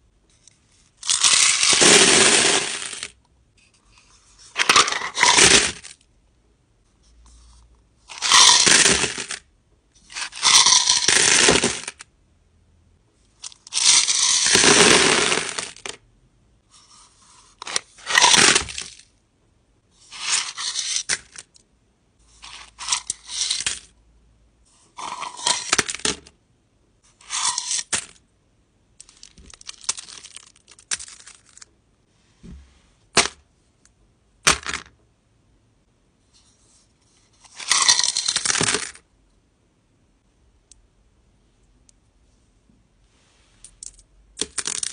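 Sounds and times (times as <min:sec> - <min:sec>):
crystals clattering into box: 0:37.5 - 0:39.0, 0:43.7 - 0:44.9.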